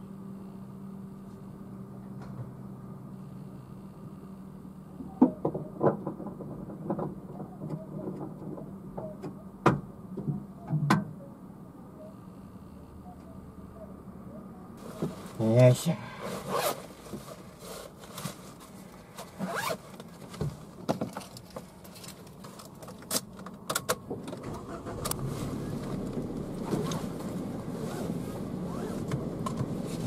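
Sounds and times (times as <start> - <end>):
car engine idling hum: 0.0 - 30.0
clicks and rustles of handling: 16.6 - 24.4.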